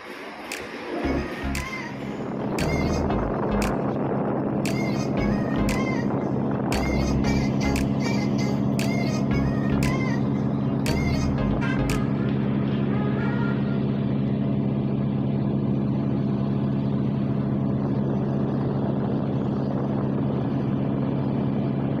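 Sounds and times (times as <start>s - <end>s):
rushing noise: 0.0s - 13.5s
ship engines droning: 0.0s - 22.0s.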